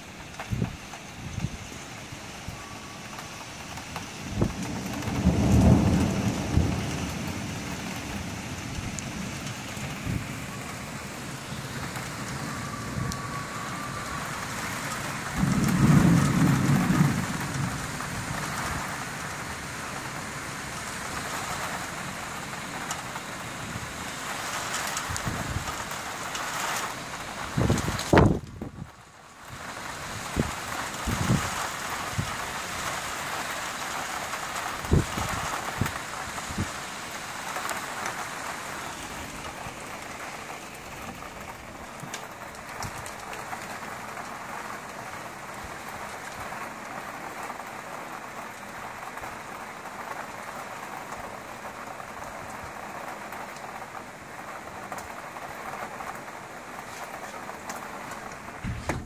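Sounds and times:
rain falling: 0.0 - 59.0
dull thumps: 58.6 - 59.0.

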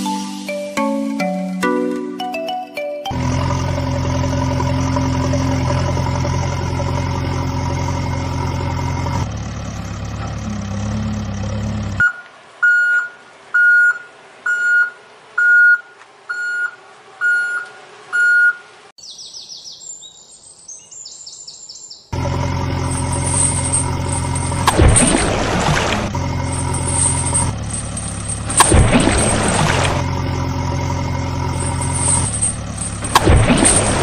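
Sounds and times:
diesel engine running: 3.1 - 18.9, 22.2 - 34.0
birds chirping: 3.6 - 33.1
reversing alarm beeping: 12.0 - 18.7.

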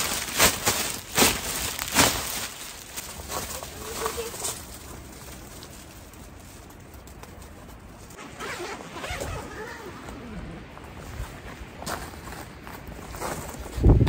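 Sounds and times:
fabric and plastic rustling: 0.0 - 14.0
zipper-like scratchy stretch: 8.1 - 10.6.

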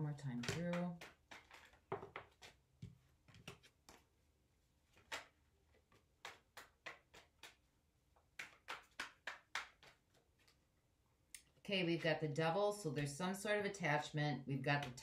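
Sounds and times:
cards being shuffled: 0.4 - 4.1, 4.8 - 10.6.

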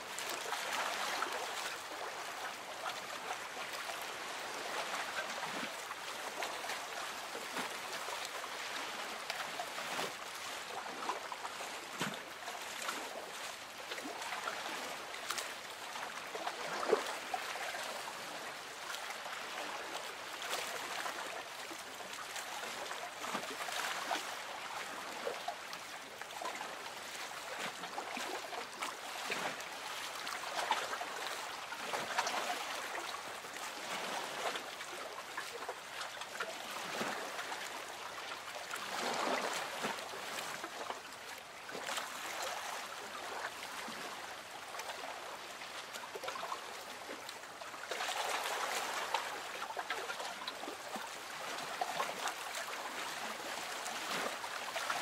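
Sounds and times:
lake water lapping: 0.0 - 55.0
small splashes and plops: 44.7 - 55.0.

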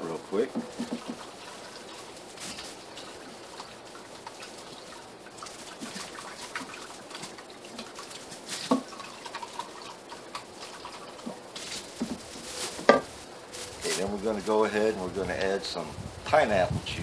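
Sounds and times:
water pattering: 0.0 - 12.2.

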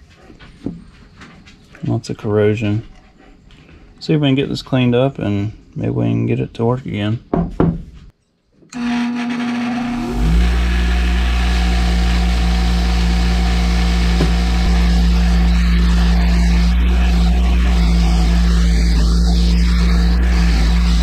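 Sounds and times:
machine motor humming: 8.8 - 21.0.

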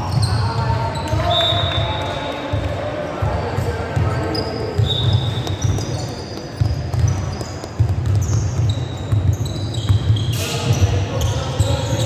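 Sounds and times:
basketball dribbling: 2.5 - 12.0
shoes squeaking on wooden floor: 4.1 - 12.0.

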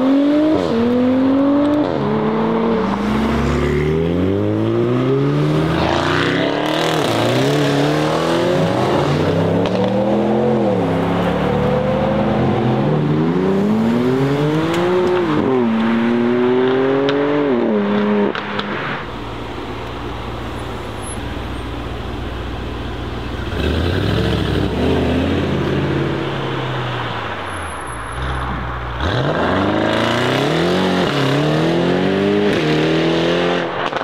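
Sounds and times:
car engine revving loudly: 0.0 - 18.4, 29.0 - 33.8.

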